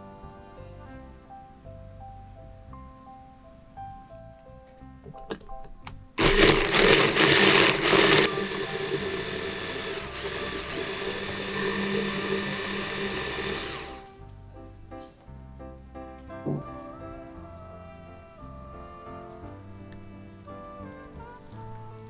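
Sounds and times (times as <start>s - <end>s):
hand blender motor: 6.2s - 14.1s.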